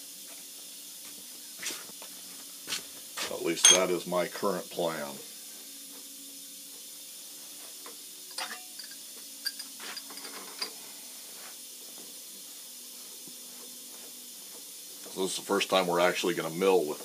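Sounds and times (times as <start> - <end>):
steady low hiss: 0.0 - 17.0.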